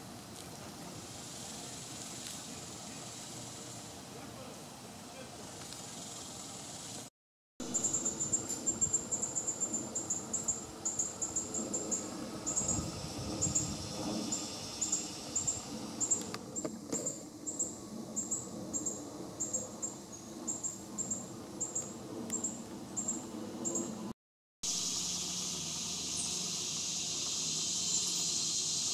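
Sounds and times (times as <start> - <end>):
insect chirping: 1.0 - 4.0, 5.7 - 7.0, 7.6 - 24.0, 24.7 - 28.9.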